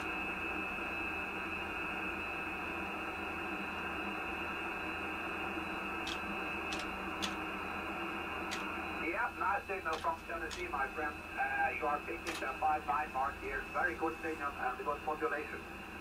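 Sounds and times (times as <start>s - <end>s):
radio static hiss: 5.9s - 16.0s.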